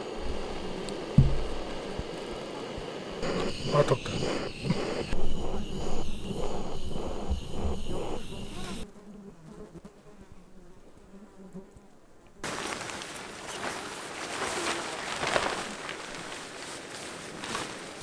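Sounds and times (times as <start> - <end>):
flies buzzing: 0.0 - 12.6
tent fabric rustling and crackling: 12.4 - 18.0.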